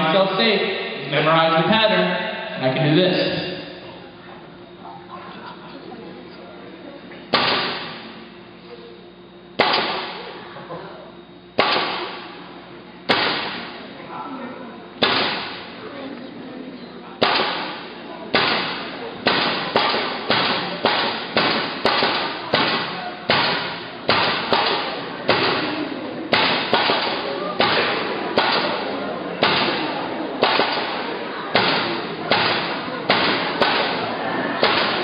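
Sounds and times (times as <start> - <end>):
nail gun firing into wood: 7.3 - 8.0, 9.6 - 10.2, 11.6 - 12.2, 13.1 - 13.7, 15.0 - 15.6, 17.2 - 25.7, 26.3 - 28.8, 29.4 - 34.0, 34.6 - 35.0.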